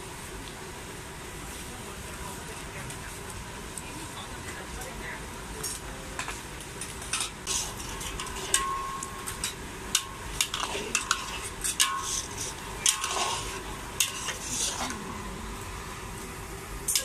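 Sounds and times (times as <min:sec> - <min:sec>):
spatula scraping metal wok: 0:06.8 - 0:15.3.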